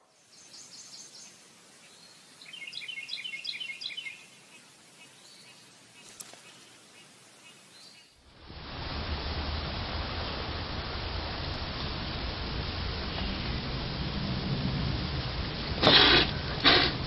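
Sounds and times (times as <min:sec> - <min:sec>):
faint bird chirping: 0:00.0 - 0:08.2
steady hiss: 0:00.0 - 0:17.0.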